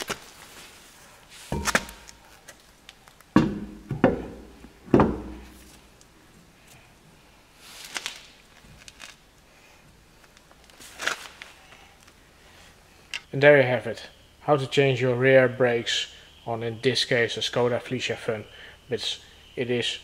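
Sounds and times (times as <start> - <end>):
car wheel knocking and thudding: 3.4 - 5.6.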